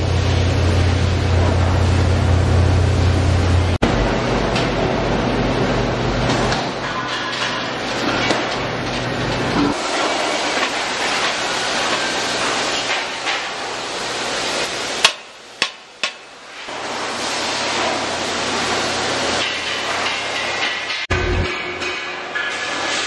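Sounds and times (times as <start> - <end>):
workshop machinery noise: 0.0 - 23.0.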